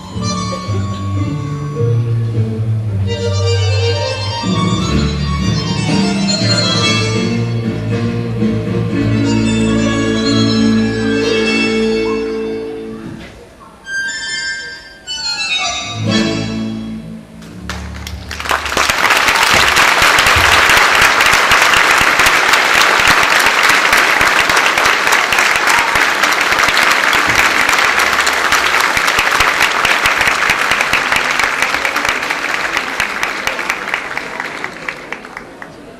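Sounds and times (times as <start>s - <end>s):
audience applauding: 17.6s - 35.9s.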